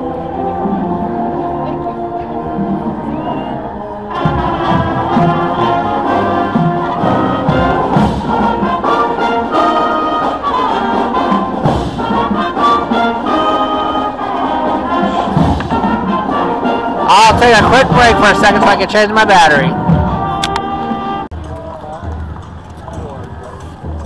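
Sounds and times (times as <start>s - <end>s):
brass section playing a tune: 0.0s - 21.4s
percussion hits: 4.1s - 9.8s, 10.6s - 13.6s, 14.2s - 18.9s.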